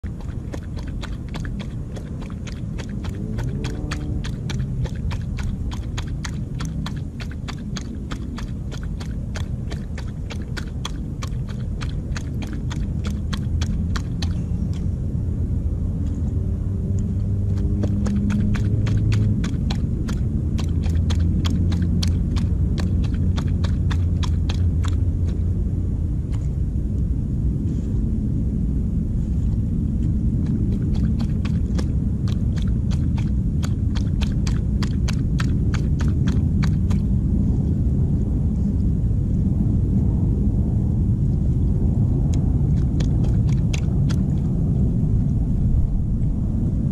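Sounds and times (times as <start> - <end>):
animal chewing and crunching food: 0.0 - 15.0, 16.0 - 25.5, 29.2 - 37.7, 42.2 - 45.4
steady low rumble: 0.0 - 46.9.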